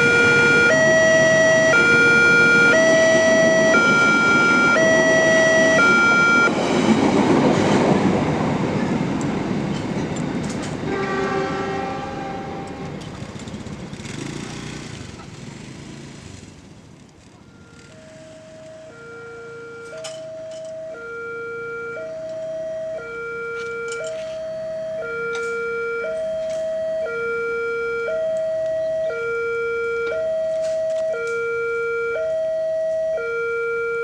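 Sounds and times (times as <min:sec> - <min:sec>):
level-crossing alarm two-tone: 0:00.0 - 0:06.5, 0:17.4 - 0:34.0
train carriages rattling on rails: 0:06.4 - 0:15.4
short horn-like tone: 0:10.9 - 0:12.9.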